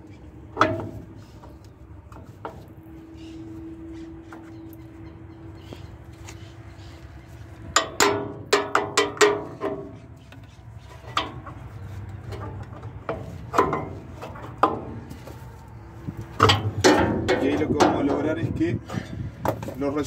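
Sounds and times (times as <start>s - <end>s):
pry bar clanking on metal: 7.8s - 11.6s, 12.2s - 15.0s, 16.4s - 18.3s.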